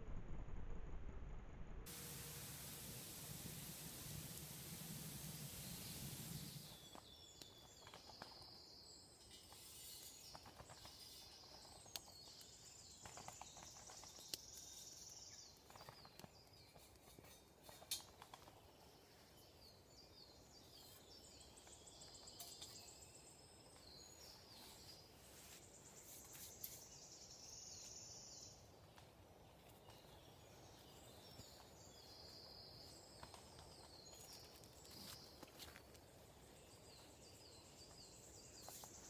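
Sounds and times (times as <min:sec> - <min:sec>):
low outdoor hush: 0:00.0 - 0:07.2.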